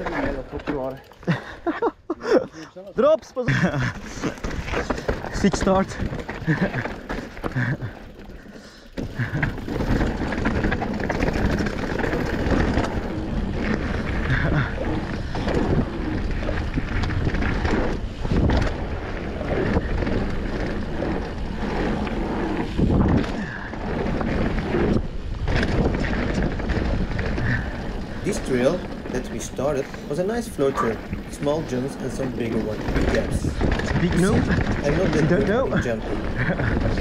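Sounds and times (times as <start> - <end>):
bike knocking over bumps: 0.0 - 1.2, 3.5 - 37.0
tyres rolling over dirt: 0.0 - 37.0
wind rushing over microphone: 9.2 - 37.0.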